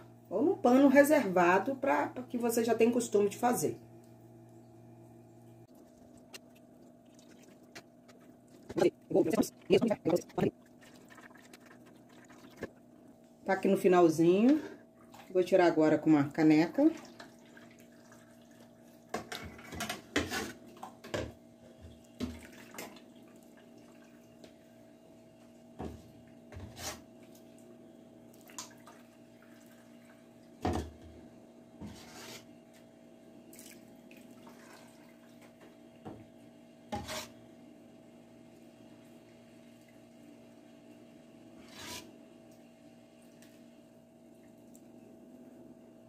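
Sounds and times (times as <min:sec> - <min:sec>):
faint steady hum: 0:00.0 - 0:46.0
liquid splashing: 0:05.7 - 0:12.8.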